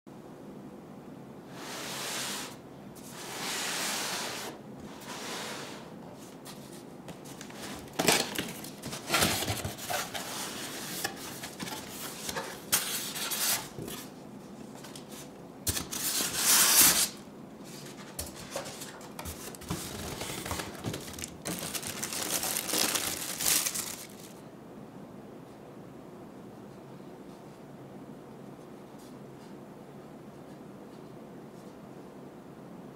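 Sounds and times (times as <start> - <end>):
packaging rustling and knocks: 7.4 - 10.2, 18.2 - 24.4
plastic bag crinkling: 19.4 - 24.4.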